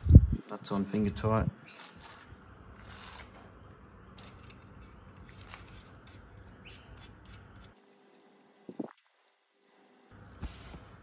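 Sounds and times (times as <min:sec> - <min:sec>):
low background rumble: 0:00.0 - 0:00.4.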